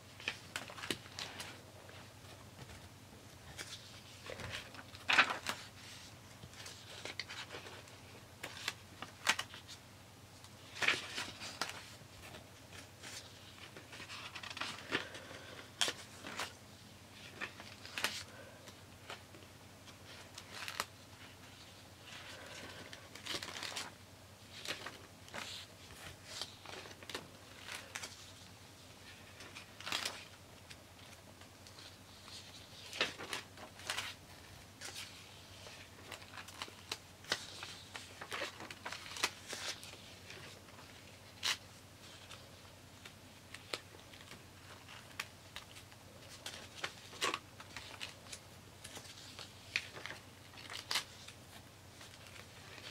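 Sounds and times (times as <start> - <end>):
paper pages rustling: 0.1 - 9.8, 10.4 - 16.6, 17.2 - 52.9
light clicks of pages: 0.2 - 1.6, 43.0 - 52.9.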